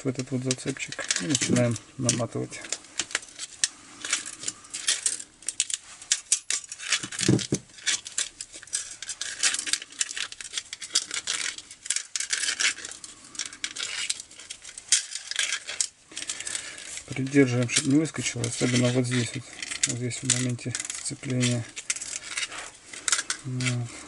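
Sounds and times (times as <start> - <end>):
recoil spring clicking and rattling: 0.2 - 23.9.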